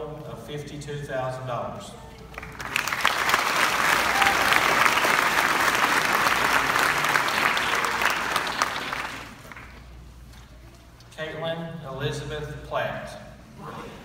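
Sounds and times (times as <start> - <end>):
audience applauding: 2.3 - 9.8.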